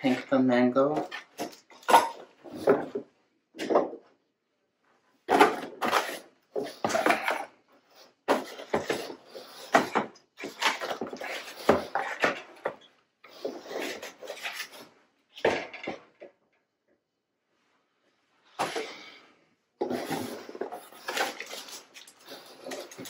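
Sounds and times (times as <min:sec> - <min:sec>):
cardboard scraping and rustling: 0:05.3 - 0:07.5.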